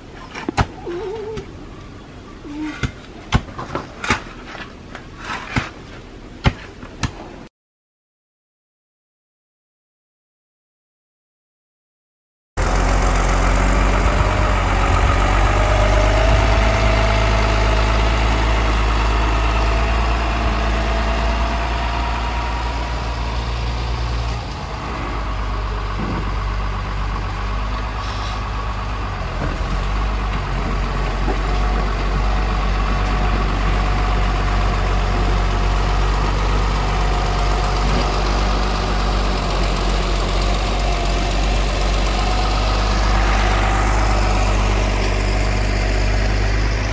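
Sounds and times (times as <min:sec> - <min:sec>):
diesel engine droning: 0:12.6 - 0:46.9.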